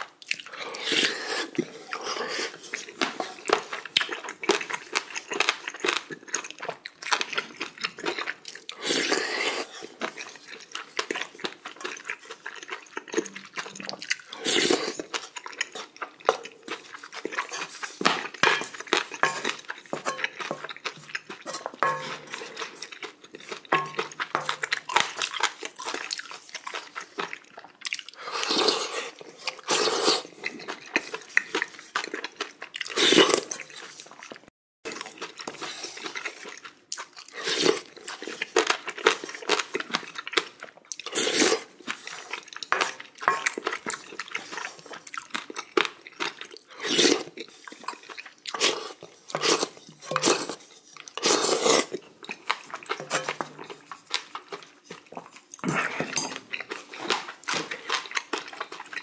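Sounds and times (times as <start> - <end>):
chewing with mouth noises: 0.0 - 59.0
wooden spoon scraping pot: 17.4 - 22.8, 23.6 - 25.2, 49.3 - 52.0, 52.9 - 54.0.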